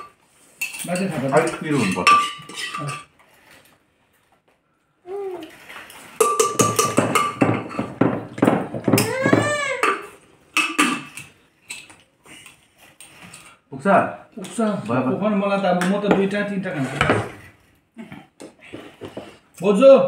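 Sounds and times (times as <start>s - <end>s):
plates and cutlery clinking: 0.0s - 3.3s, 6.0s - 12.0s.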